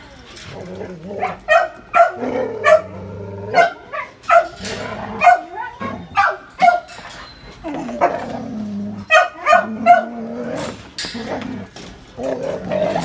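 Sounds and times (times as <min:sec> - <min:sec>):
dog barking: 0:01.2 - 0:02.9, 0:03.5 - 0:04.6, 0:05.2 - 0:05.6, 0:06.2 - 0:06.9, 0:09.1 - 0:10.2.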